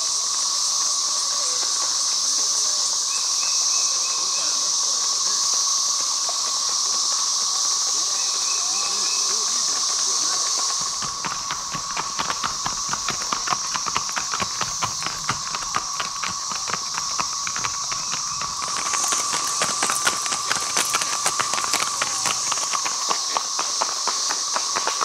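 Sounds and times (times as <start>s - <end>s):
cicada chorus drone: 0.0s - 25.0s
horse hooves clip-clopping: 5.8s - 25.0s.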